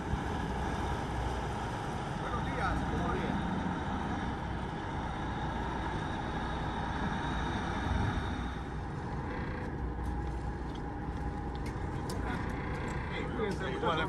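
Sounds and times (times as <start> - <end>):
boat engine running: 0.0 - 14.0.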